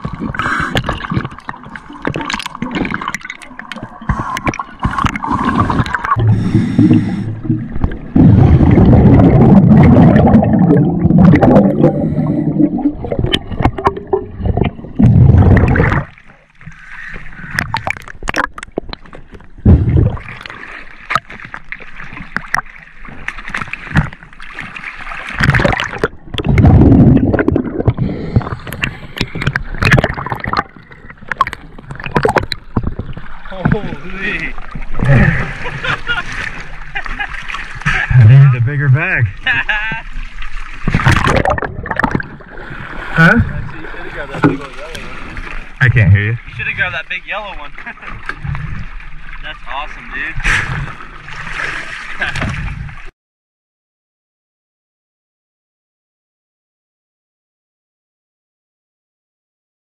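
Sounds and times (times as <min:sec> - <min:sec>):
underwater clicks: 0:00.0 - 0:08.2, 0:12.7 - 0:16.8, 0:17.5 - 0:24.6, 0:25.3 - 0:34.0, 0:40.8 - 0:42.4
diver's bubbles gurgling: 0:00.0 - 0:16.5, 0:17.4 - 0:39.5, 0:40.4 - 0:46.8
water sloshing: 0:00.0 - 0:53.1.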